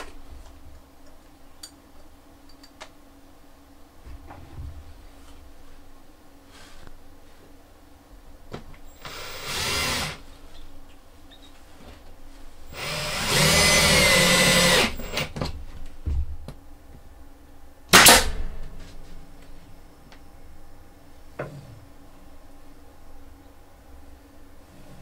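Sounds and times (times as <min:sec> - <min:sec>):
power drill running: 0:08.9 - 0:10.2, 0:12.7 - 0:15.3.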